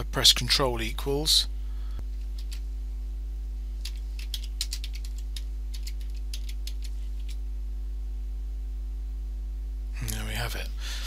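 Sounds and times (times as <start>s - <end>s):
low electrical hum: 0.0s - 11.0s
keyboard keystrokes clicking: 3.8s - 7.4s.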